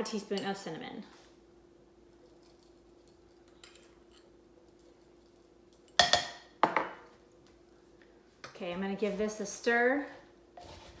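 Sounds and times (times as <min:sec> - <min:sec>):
faint steady hum: 0:00.0 - 0:11.0
metal spoon clinking on dishes: 0:05.9 - 0:06.5.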